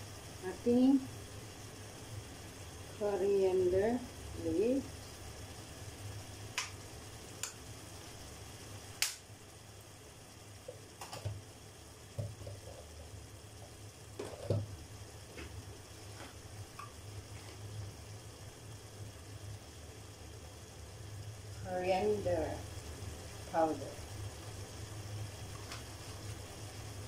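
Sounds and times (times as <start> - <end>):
food sizzling in a pot: 0.0 - 27.0
sharp pops and clicks: 6.5 - 6.8, 7.4 - 7.6, 9.0 - 9.3, 11.0 - 11.4, 12.1 - 12.9, 16.7 - 17.0.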